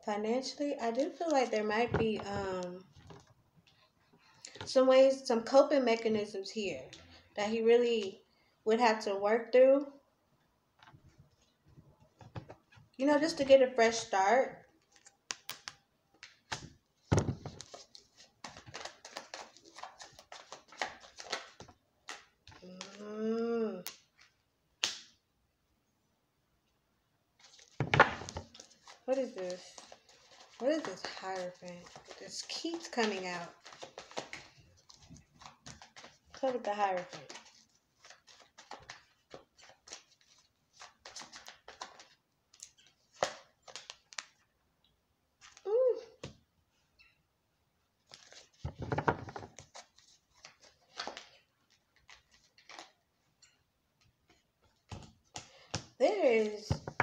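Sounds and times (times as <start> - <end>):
cards being shuffled: 14.8 - 23.1, 27.4 - 44.4, 45.4 - 46.4, 48.0 - 53.0.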